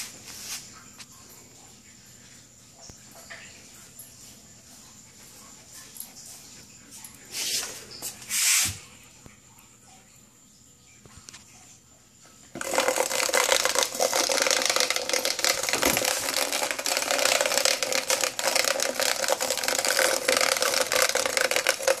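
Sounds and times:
insect buzzing in plastic container: 12.5 - 22.0.

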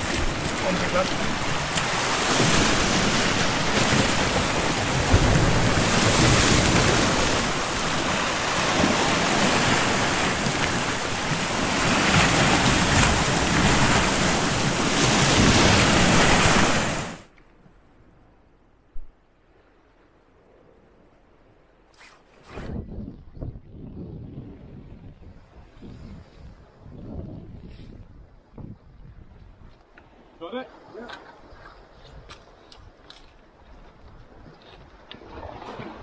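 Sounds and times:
sea swell washing over rocks: 0.0 - 17.3.

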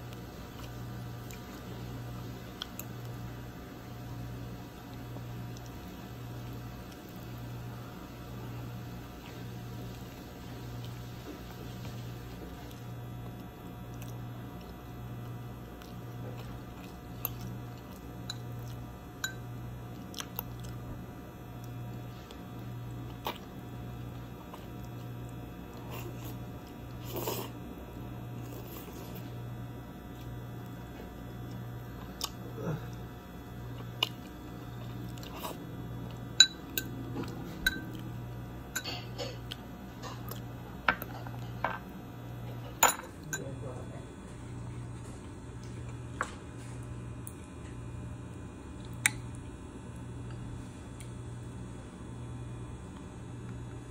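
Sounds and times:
chewing: 0.1 - 3.2, 9.1 - 21.0, 21.6 - 27.6, 30.1 - 41.6.

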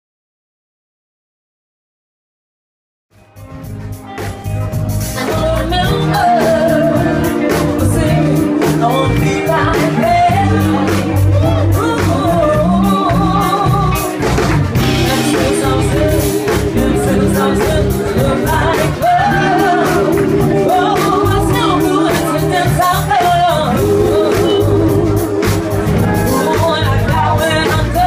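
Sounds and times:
bass: 3.1 - 28.0
drums: 3.1 - 28.0
woman singing: 5.1 - 14.2, 14.8 - 28.0.

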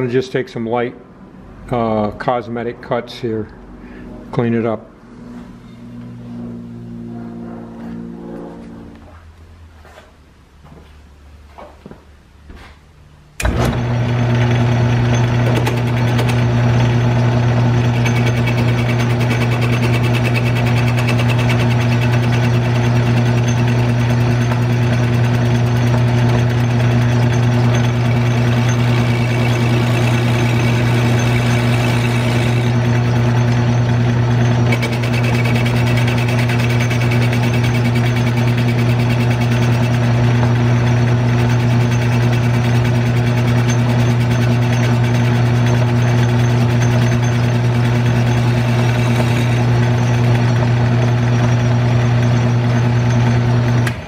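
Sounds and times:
metal lathe humming: 13.4 - 54.0.

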